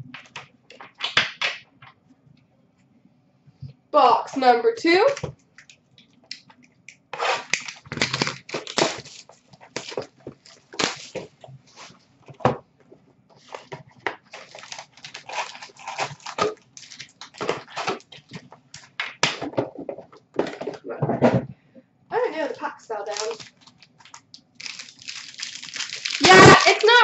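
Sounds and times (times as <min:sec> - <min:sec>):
cardboard and wrapper tearing: 0:07.2 - 0:11.3, 0:14.3 - 0:18.4, 0:23.1 - 0:27.0.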